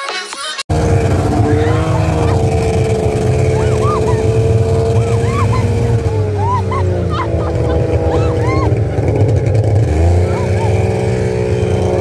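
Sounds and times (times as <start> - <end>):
snowmobile engine running: 0.7 - 12.0
high squeals of laughter: 1.4 - 2.6, 3.3 - 8.9, 10.1 - 11.2.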